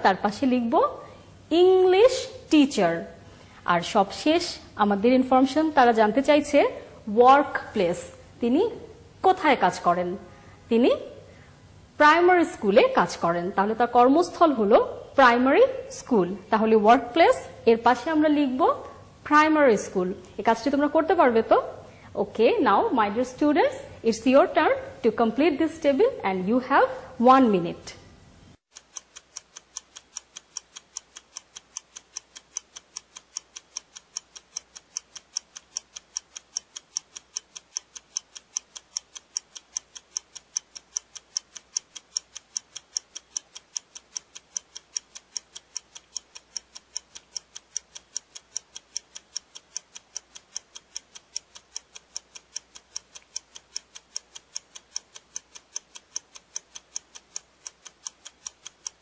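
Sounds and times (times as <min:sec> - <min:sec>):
clock ticking: 0:00.0 - 0:03.3, 0:28.6 - 0:59.0.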